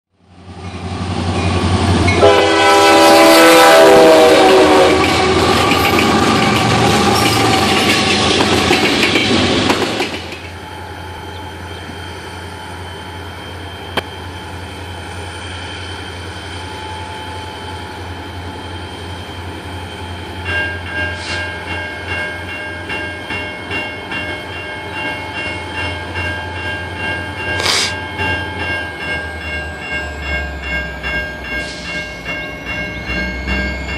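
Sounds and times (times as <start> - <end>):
diesel locomotive engines droning: 0.2 - 33.9
diesel train horn: 2.1 - 8.0
bell ringing: 16.8 - 33.9.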